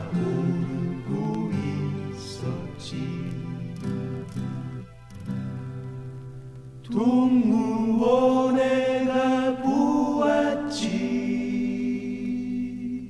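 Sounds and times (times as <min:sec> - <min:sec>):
voices singing a held chord: 0:00.0 - 0:04.3, 0:06.8 - 0:13.0.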